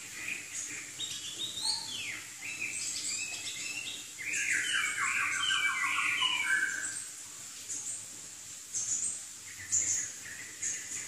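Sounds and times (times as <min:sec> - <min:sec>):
bird singing whistled phrases: 0:01.1 - 0:07.0.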